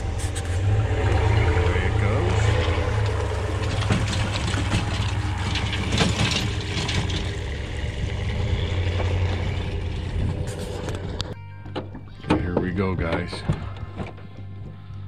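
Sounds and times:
footsteps on gravel: 0.0 - 1.6
engine idling: 0.0 - 14.4.

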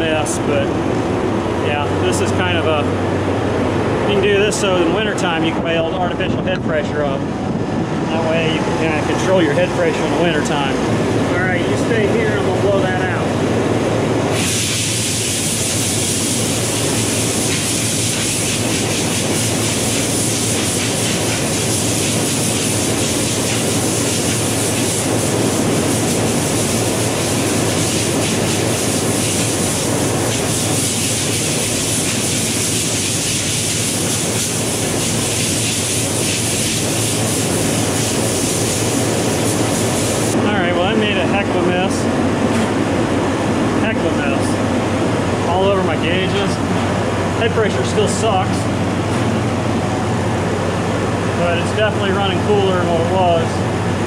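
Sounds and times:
condensing units humming: 0.0 - 54.0
loud steady gas hiss: 14.3 - 40.4.

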